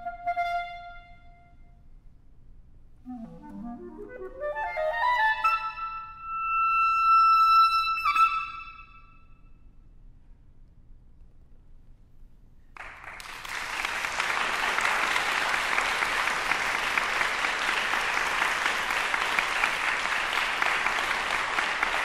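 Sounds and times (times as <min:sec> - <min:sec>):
audience applauding: 0:12.8 - 0:22.0.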